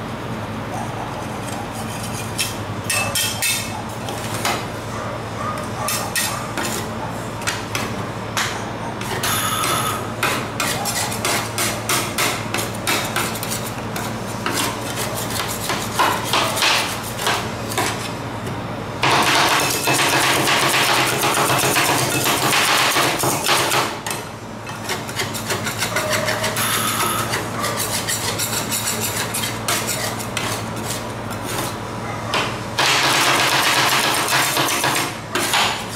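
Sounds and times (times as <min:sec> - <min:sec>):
metal spatulas chopping and scraping: 0:01.8 - 0:03.7, 0:10.2 - 0:18.0, 0:19.0 - 0:31.8.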